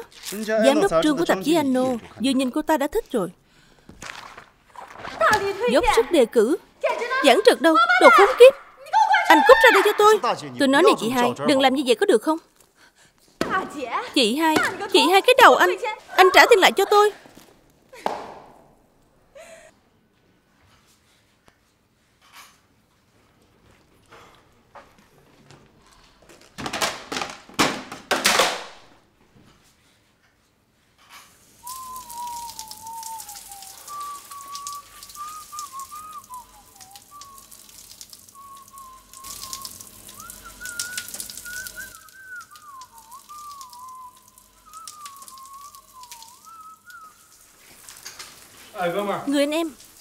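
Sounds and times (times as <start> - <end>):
shower running: 0.0 - 12.9, 13.5 - 18.8, 31.0 - 50.0
man whistling a tune: 31.6 - 37.6, 38.3 - 47.4.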